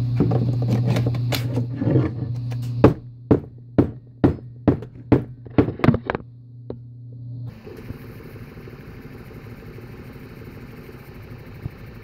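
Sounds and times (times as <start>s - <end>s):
cordless tool motor running: 7.5s - 12.0s.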